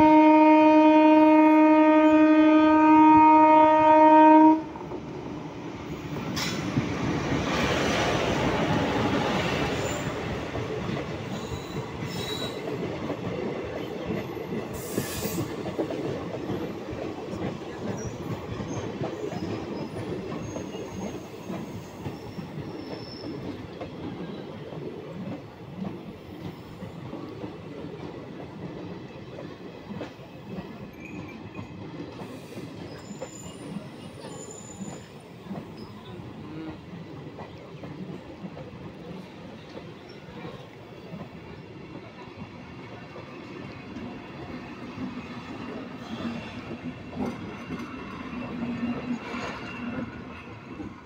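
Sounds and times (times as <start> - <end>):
high wheel squeals: 11.3 - 12.7, 31.0 - 35.2.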